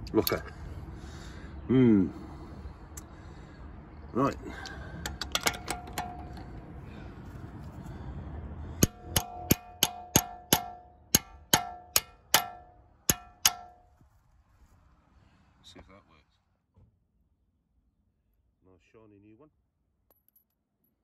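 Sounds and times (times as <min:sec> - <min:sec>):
hammer striking steel socket: 0:05.0 - 0:06.5, 0:08.8 - 0:13.8
socket clinking: 0:05.0 - 0:06.6.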